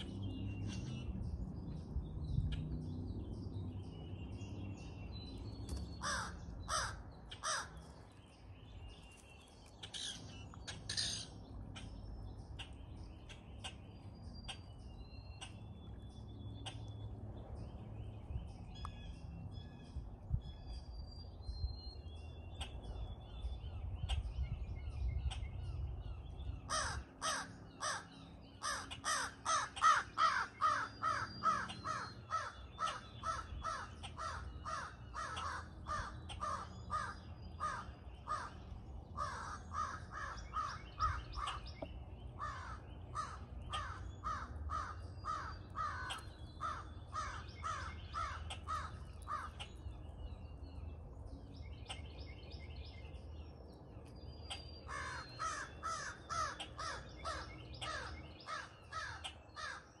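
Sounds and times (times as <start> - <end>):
crows cawing: 6.0 - 7.9, 26.7 - 38.6, 39.2 - 41.6, 42.4 - 49.7, 54.9 - 59.9.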